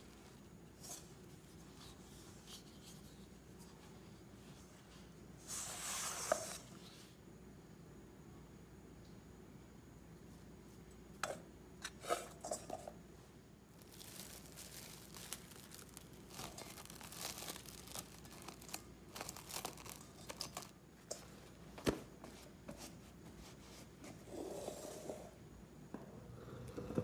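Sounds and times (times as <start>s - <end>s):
plastic wrap crinkling and tearing: 13.7s - 20.8s.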